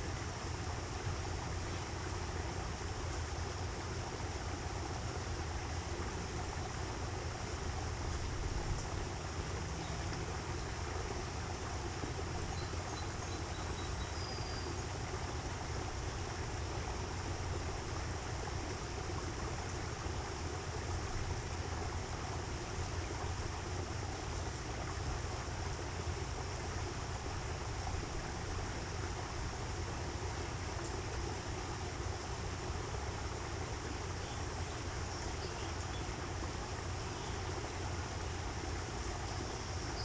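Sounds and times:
running water of stream: 0:00.0 - 0:40.0.

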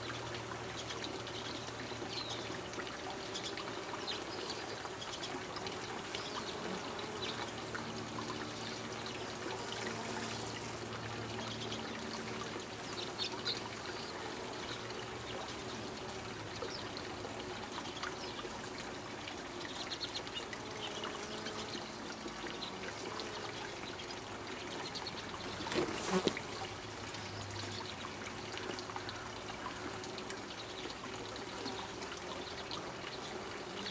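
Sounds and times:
bees buzzing: 0:09.5 - 0:10.9, 0:25.4 - 0:26.5.

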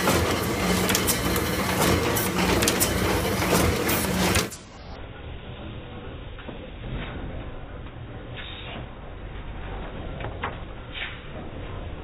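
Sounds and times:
printing press clattering: 0:00.0 - 0:04.7.

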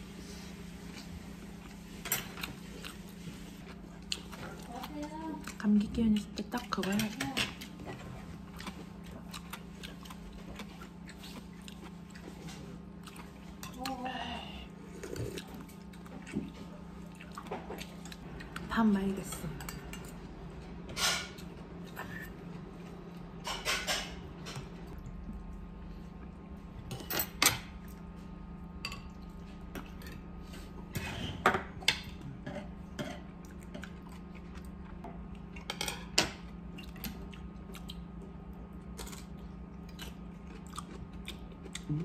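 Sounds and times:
steady low hum: 0:00.0 - 0:42.0
utensils clinking on dishes: 0:23.4 - 0:24.7, 0:26.9 - 0:27.7.

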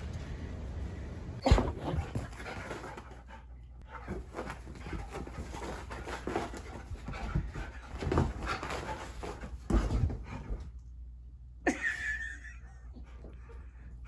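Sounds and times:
dog panting: 0:02.0 - 0:10.6.

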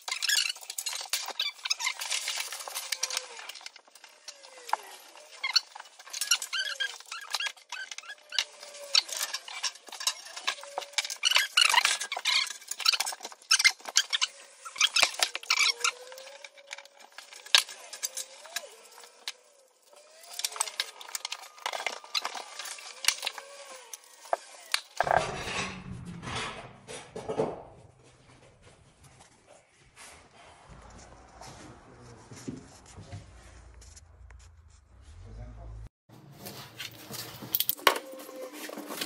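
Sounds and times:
rubbing and handling noise: 0:00.0 - 0:25.4.

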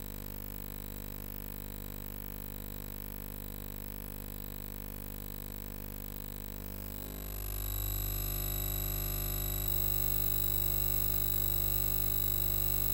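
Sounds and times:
electronic drone: 0:07.1 - 0:12.9.

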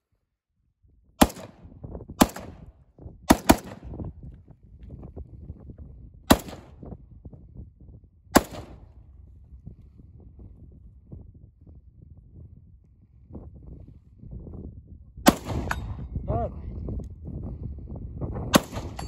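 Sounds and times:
rifle shots: 0:01.2 - 0:01.6, 0:02.2 - 0:02.6, 0:03.3 - 0:03.9, 0:06.3 - 0:06.7, 0:08.4 - 0:08.8, 0:15.3 - 0:16.0, 0:18.6 - 0:19.0.

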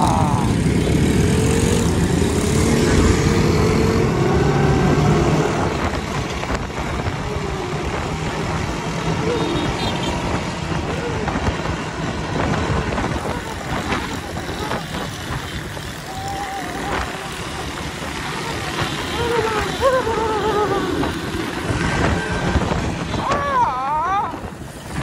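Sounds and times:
motorcycle engine running: 0:05.7 - 0:23.3.

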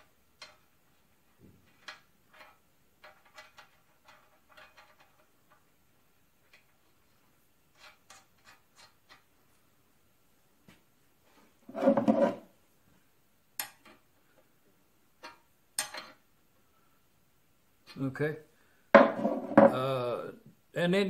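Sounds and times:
faint clicks and metal taps: 0:00.3 - 0:05.8, 0:06.4 - 0:09.7, 0:13.6 - 0:16.2.

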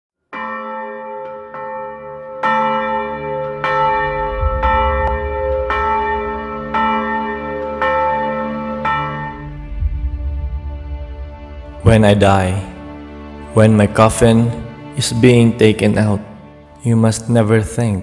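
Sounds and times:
bell ringing: 0:00.4 - 0:10.3
low drone: 0:03.5 - 0:15.0.

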